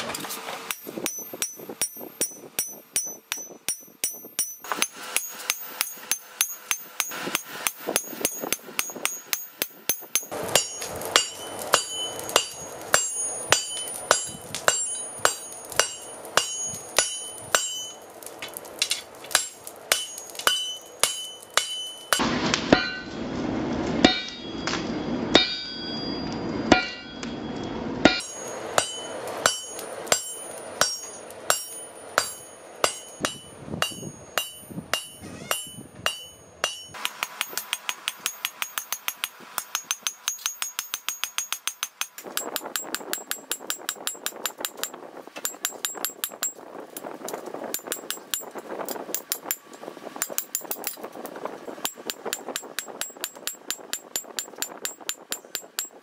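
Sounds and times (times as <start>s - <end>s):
hammer striking metal on anvil: 0.7s - 23.2s, 24.0s - 27.4s, 28.0s - 46.6s.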